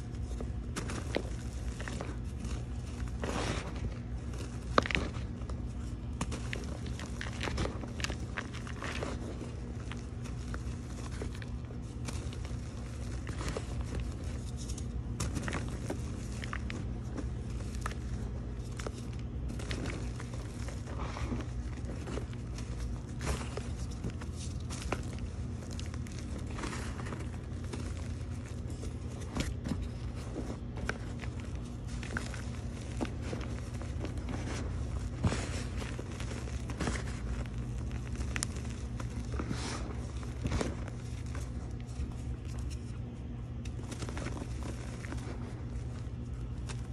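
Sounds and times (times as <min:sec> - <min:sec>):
chalk crunching by hand: 0:00.0 - 0:46.9
steady low hum: 0:00.0 - 0:46.9.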